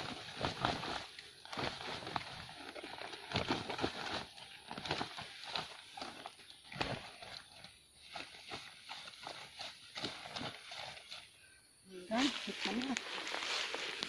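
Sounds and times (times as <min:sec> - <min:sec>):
plastic sack rustling: 0:00.0 - 0:11.2.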